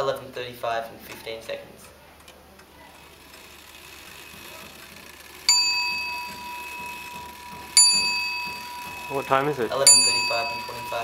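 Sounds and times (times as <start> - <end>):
small metal bell ding: 5.5 - 11.0.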